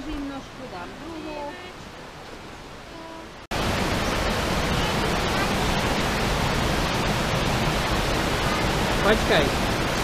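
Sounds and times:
fast-flowing water rushing: 0:00.0 - 0:10.0.

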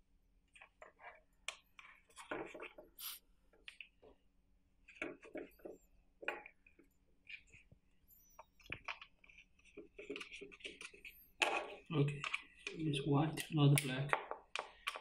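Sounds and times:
plastic clicks taps and scrapes: 0:08.4 - 0:12.8, 0:13.4 - 0:15.0.

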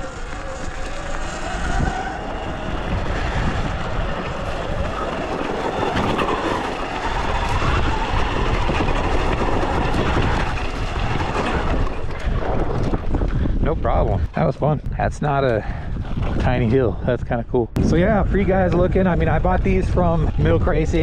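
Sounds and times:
electric motor whine: 0:00.0 - 0:12.2
bike rattling on loose rock: 0:00.0 - 0:13.6.

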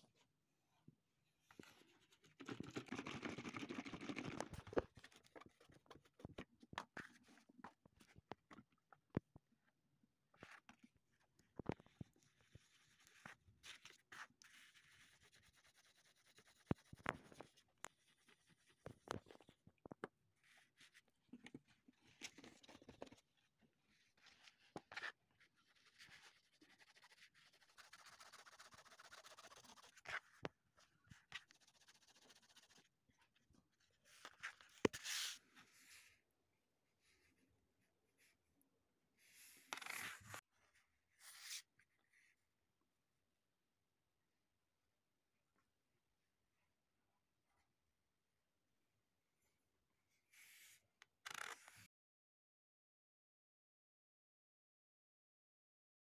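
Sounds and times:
coin rubbing on cloth: 0:26.6 - 0:30.0.

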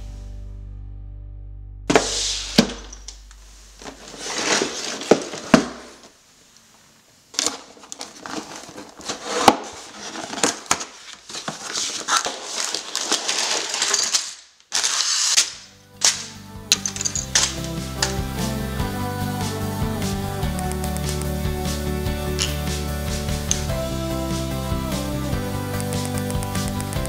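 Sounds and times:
plastic bags crinkling: 0:01.9 - 0:06.2, 0:07.3 - 0:17.8
cardboard box tearing: 0:03.8 - 0:06.1, 0:07.4 - 0:15.5.

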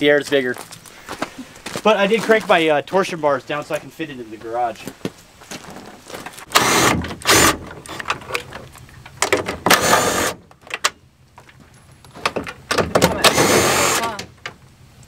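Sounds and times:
cordless power driver bursts: 0:06.5 - 0:07.6, 0:09.7 - 0:10.4, 0:13.2 - 0:14.2.

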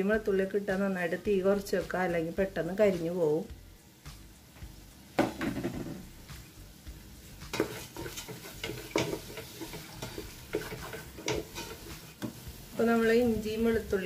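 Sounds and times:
onions sauteing: 0:00.0 - 0:14.0
wooden spoon knocking metal pot: 0:05.2 - 0:06.0, 0:07.5 - 0:11.7.

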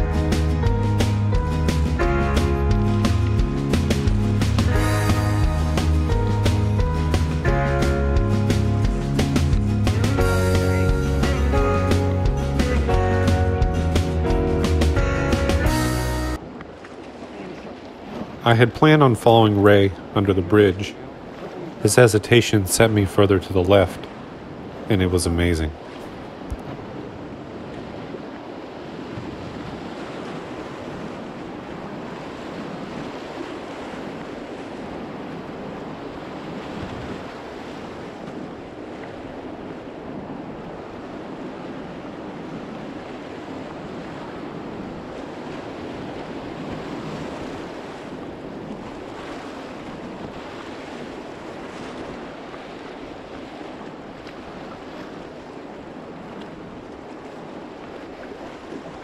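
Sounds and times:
wind on microphone: 0:25.8 - 0:59.0.

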